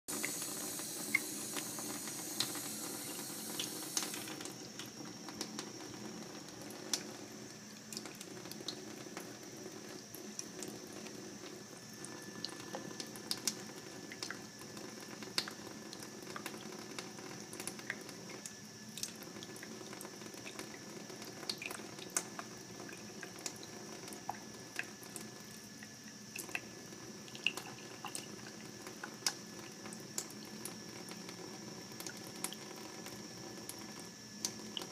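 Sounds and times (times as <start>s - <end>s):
faucet running into metal sink: 0.1s - 25.5s
water drips and splashes: 0.1s - 26.7s, 27.3s - 31.3s, 31.9s - 34.9s.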